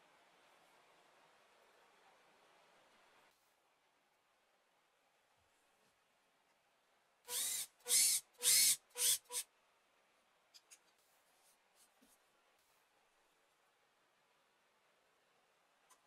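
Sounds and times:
power drill boring into plywood: 7.3 - 9.4.

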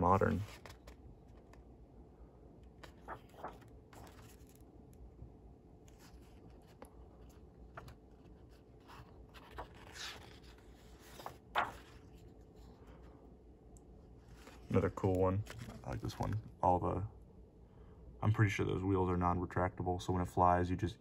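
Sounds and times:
paper pages turning and rustling: 0.0 - 1.6, 2.7 - 4.7, 5.8 - 12.7, 14.2 - 16.5.

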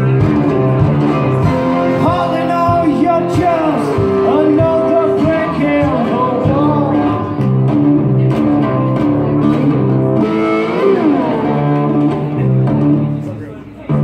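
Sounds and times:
overdriven lap steel guitar: 0.0 - 14.0.

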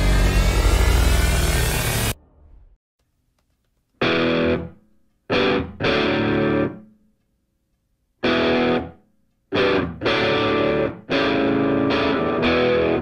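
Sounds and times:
distorted electric guitar chords: 4.0 - 6.8, 8.2 - 13.0.

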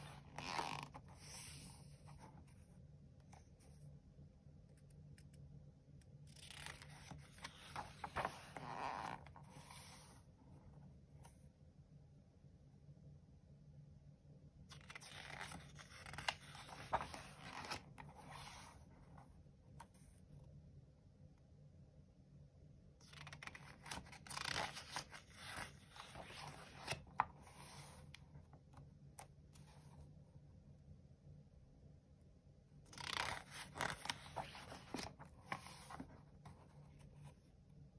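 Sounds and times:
page turning rustle: 6.2 - 10.3, 14.7 - 20.0, 23.0 - 28.8, 32.9 - 37.4
paper crackles: 6.4 - 9.3, 14.7 - 18.8, 32.9 - 36.5.

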